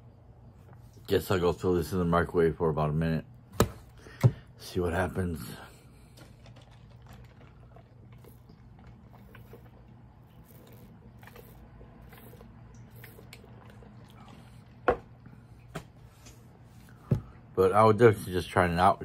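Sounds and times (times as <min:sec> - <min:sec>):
sipping through a straw: 0:06.4 - 0:14.9
cup knocking down: 0:14.8 - 0:15.2.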